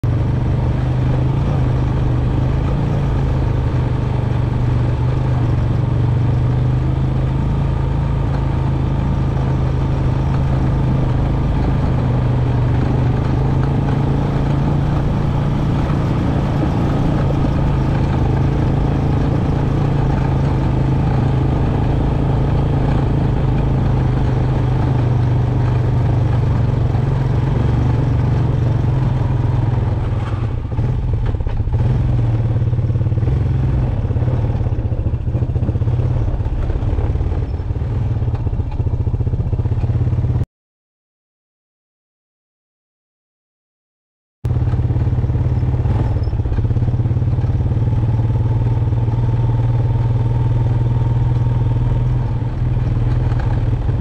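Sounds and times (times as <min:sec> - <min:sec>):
atv engine running: 0:00.0 - 0:40.4, 0:44.5 - 0:54.0
tires crunching over gravel: 0:00.1 - 0:32.2.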